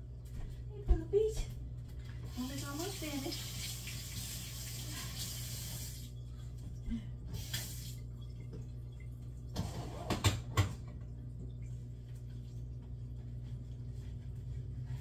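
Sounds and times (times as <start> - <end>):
steady low hum: 0.0 - 2.5, 6.0 - 9.6, 10.4 - 15.0.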